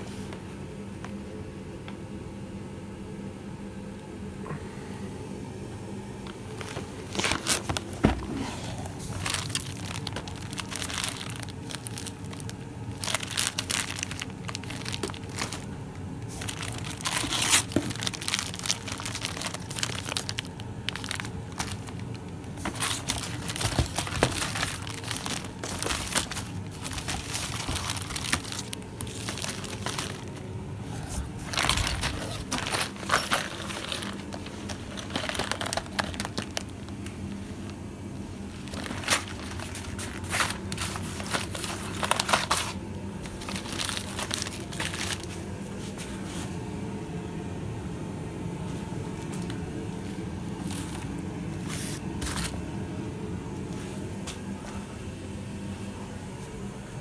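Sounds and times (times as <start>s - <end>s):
plastic wrapping crinkling: 6.3s - 37.8s, 38.4s - 46.3s, 50.5s - 52.6s.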